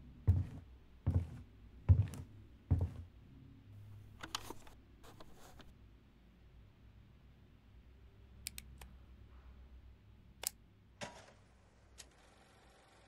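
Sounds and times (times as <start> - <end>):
dull low thuds: 0.3 - 3.1.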